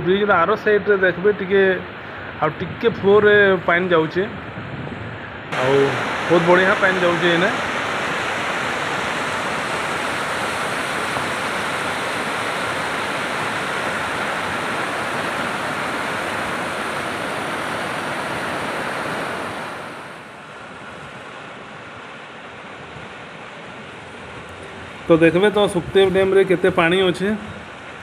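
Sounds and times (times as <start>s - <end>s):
floodwater rushing and churning: 5.4s - 28.0s
water running over rocks: 5.6s - 19.4s.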